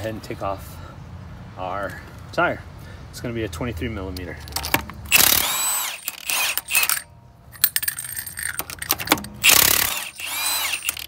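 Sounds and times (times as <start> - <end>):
metallic clinks of nuts: 4.5 - 11.0
impact wrench whirring: 5.1 - 11.0.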